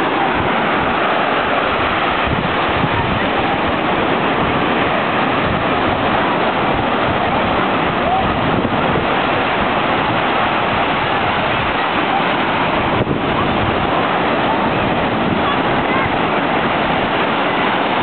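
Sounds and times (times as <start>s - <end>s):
ocean surf breaking: 0.0s - 18.0s
voices of bathers: 10.9s - 16.7s.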